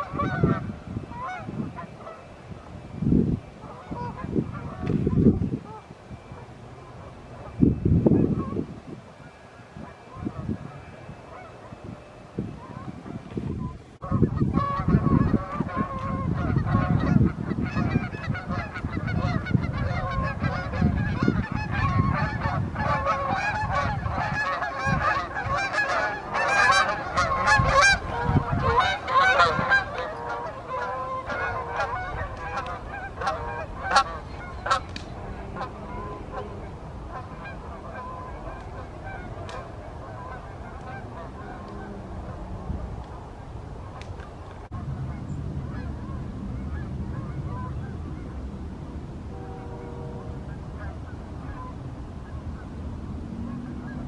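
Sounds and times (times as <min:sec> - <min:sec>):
geese honking in flight: 0:00.0 - 0:02.4, 0:03.6 - 0:48.4, 0:49.3 - 0:54.0
low rumble: 0:14.0 - 0:54.0.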